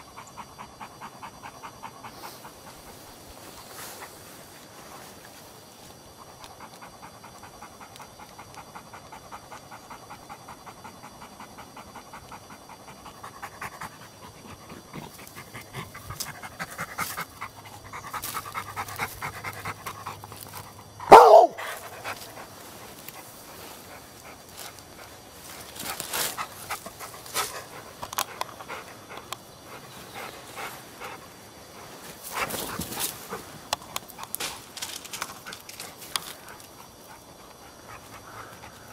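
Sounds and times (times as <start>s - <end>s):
dog panting: 0.0s - 3.3s, 6.0s - 34.3s, 35.2s - 38.9s.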